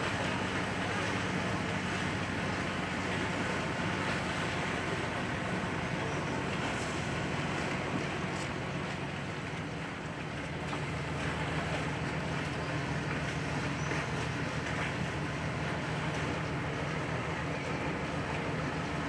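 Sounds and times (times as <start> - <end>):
boat engine humming: 0.0 - 19.0
water and wind hiss: 0.0 - 19.0.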